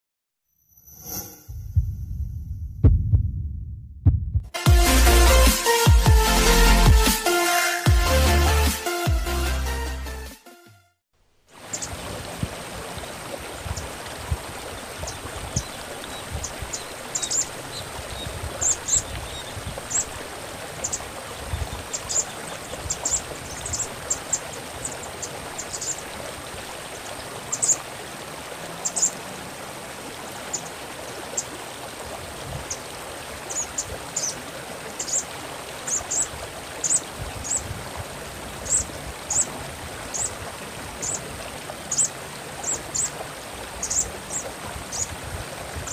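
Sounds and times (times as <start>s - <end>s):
stream water running: 11.2s - 45.9s.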